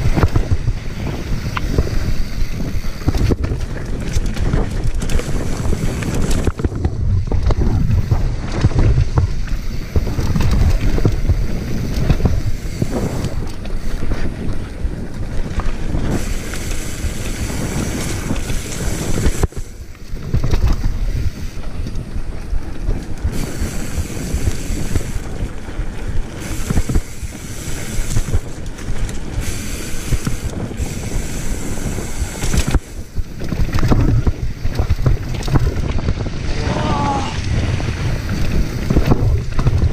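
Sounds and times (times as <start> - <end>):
bike knocking and rattling: 0.0 - 39.9
bike tyres on dirt: 0.0 - 39.9
wind buffeting microphone: 0.0 - 39.9.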